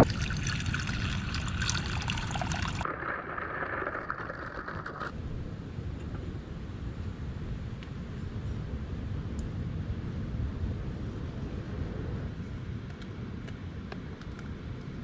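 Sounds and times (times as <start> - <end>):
steady water hiss: 0.0 - 5.1
water splashing into a saucepan: 0.0 - 5.1.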